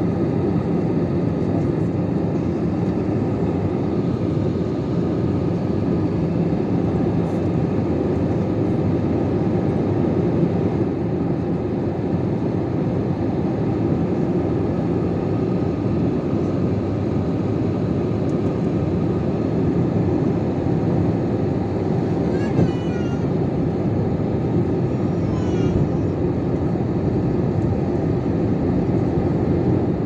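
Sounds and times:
jet engine cabin drone: 0.0 - 30.0.

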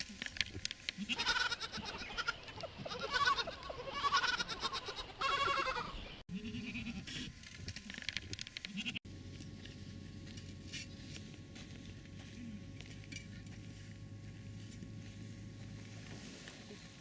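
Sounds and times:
goats bleating: 1.0 - 7.1
faint murmur of herd: 11.6 - 17.0.

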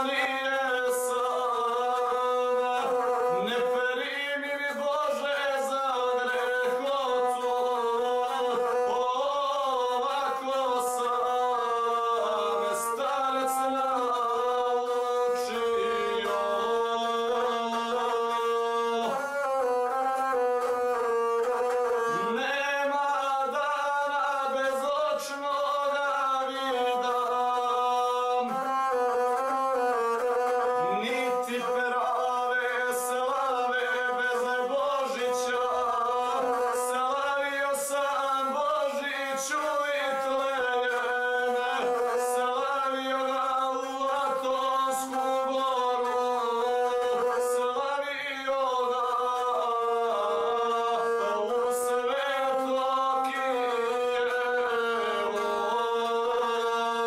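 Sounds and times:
bowed single-string fiddle: 0.0 - 57.0
man singing: 0.0 - 57.0.

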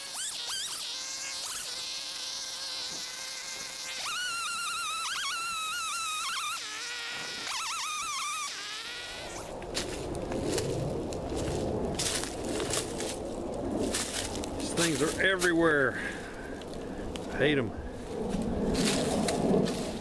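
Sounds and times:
chainsaw revving and cutting wood: 0.0 - 9.5
brush crackling underfoot: 9.3 - 20.0.

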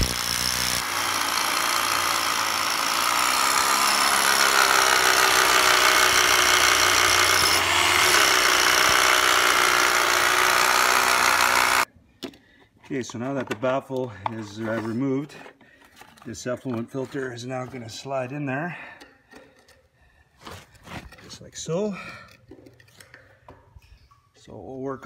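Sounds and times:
hammer drill boring into concrete: 0.0 - 11.9.

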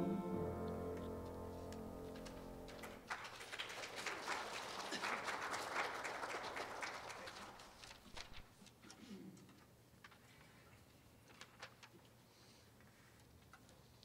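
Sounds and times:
held chord of singing: 0.0 - 2.8
congregation applauding: 2.0 - 8.4.

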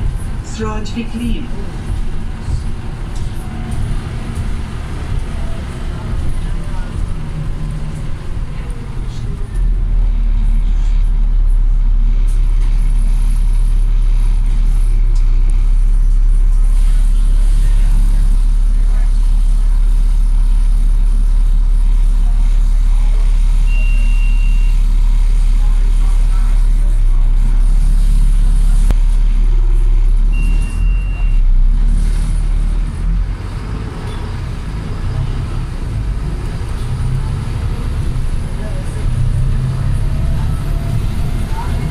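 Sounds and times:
bus diesel engine running: 0.0 - 41.9
brief high beep: 23.7 - 24.8, 30.4 - 31.4.

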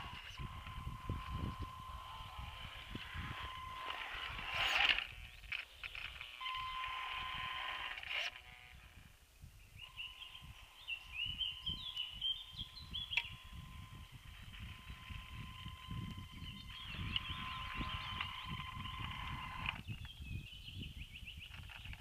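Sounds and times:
electric motor whining: 0.0 - 20.0.

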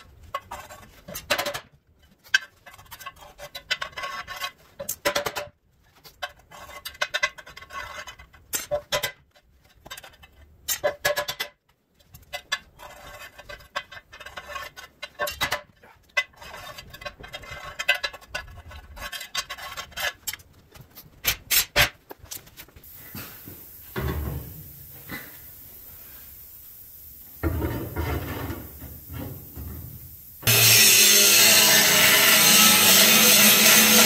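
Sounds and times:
metal scraping on concrete: 0.2 - 11.4, 12.2 - 20.6, 27.4 - 29.8, 30.4 - 34.0
hammer striking sheet metal: 30.4 - 34.0.

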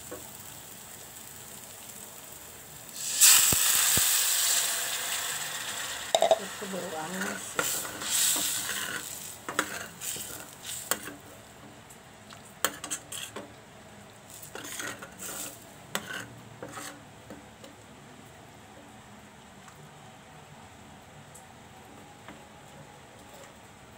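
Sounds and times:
metal spatula scraping frying pan: 5.7 - 11.2, 12.6 - 13.4, 14.3 - 17.0.

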